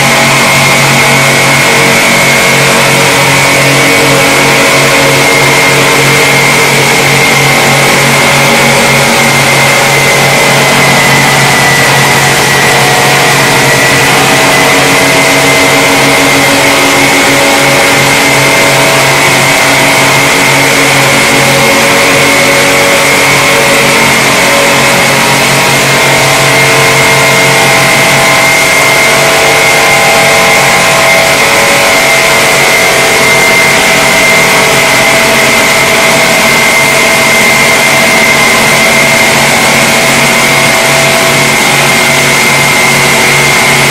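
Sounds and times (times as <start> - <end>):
abrasive belt grinding metal: 0.0 - 43.9
motor hum: 0.0 - 43.9.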